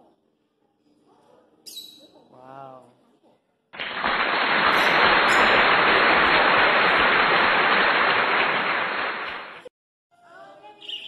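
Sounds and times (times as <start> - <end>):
loud static hiss: 3.8 - 9.7.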